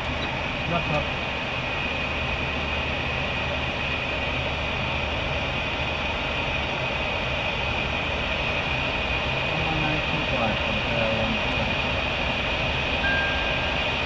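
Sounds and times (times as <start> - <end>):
high-pitched tone: 13.0 - 14.0.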